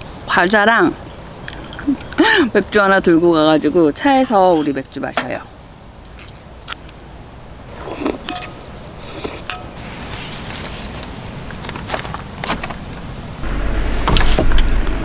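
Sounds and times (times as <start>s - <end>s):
metal utensils clinking: 8.2s - 8.6s, 9.4s - 9.8s
steady low hum: 13.3s - 15.0s.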